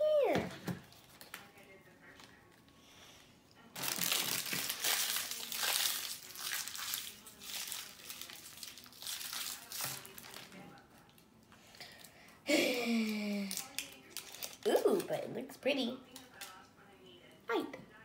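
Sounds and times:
candy wrapper crinkling: 3.8 - 12.2, 13.0 - 15.2.

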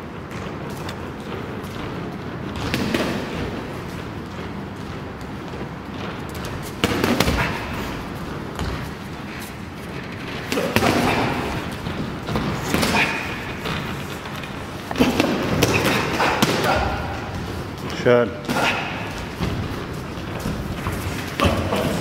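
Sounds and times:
boxing gloves thudding punches: 6.3 - 9.1, 10.0 - 17.7.

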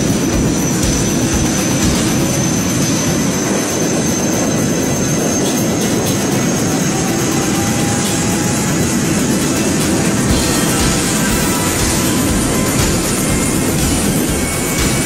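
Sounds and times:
helicopter engine and rotor rush: 0.0 - 15.0
high turbine whine: 0.0 - 15.0.

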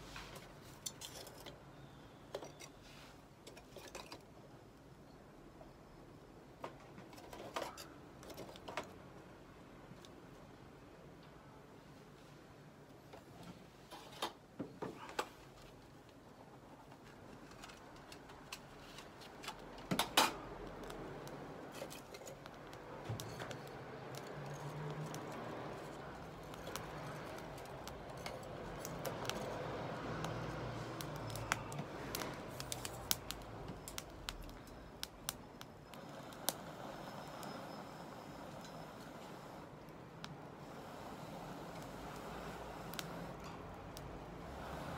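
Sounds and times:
fire crackling and snapping: 15.7 - 44.9
flame hissing: 19.1 - 44.9.

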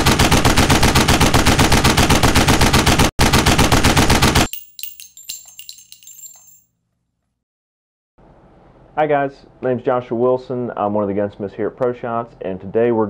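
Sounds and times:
rapid automatic gunfire: 0.0 - 4.5
metallic clinks and rings: 4.5 - 6.7.

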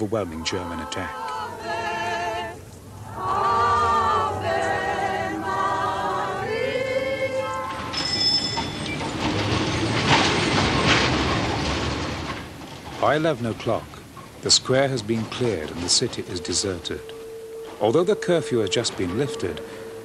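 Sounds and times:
crowd singing a hymn: 0.0 - 8.5
tram wheels rumbling on rails: 0.0 - 20.0
high wheel squeal: 3.1 - 11.6, 15.2 - 20.0.

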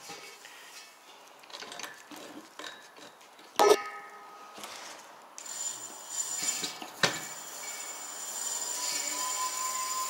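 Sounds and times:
electric motor high whine: 7.3 - 10.0.

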